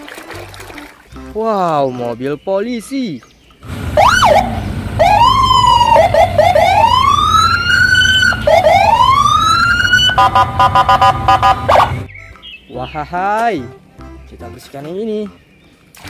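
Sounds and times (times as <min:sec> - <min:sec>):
police siren wailing: 0:03.7 - 0:12.1.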